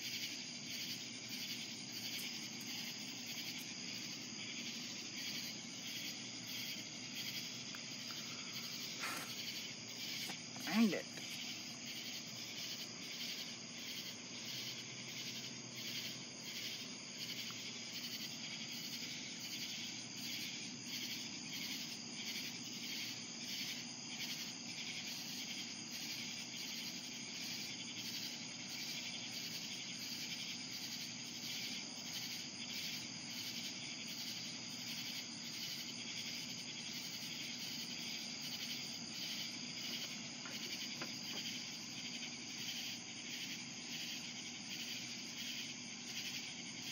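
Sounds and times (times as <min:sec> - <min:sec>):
crickets chirping: 0:00.0 - 0:46.9.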